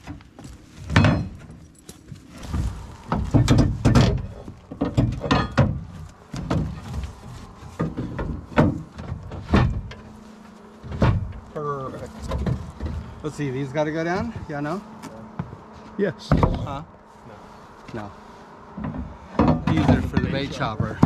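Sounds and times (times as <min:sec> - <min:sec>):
low rumble: 0:01.1 - 0:13.5
heavy gear knocking and thudding: 0:02.4 - 0:10.1.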